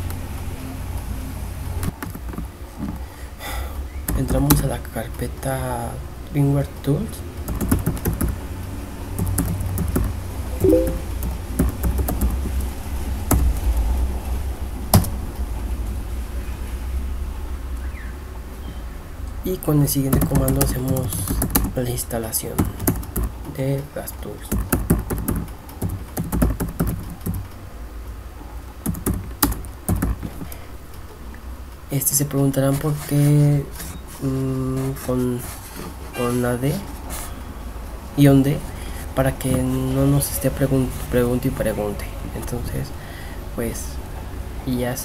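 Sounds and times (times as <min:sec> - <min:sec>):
keyboard typing clicks: 0:10.6 - 0:11.1.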